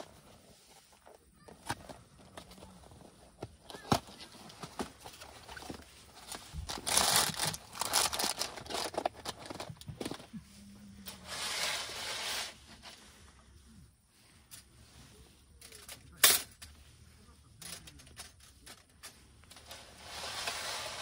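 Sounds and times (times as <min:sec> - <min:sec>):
packaging rustling and crinkling: 0:01.6 - 0:10.4.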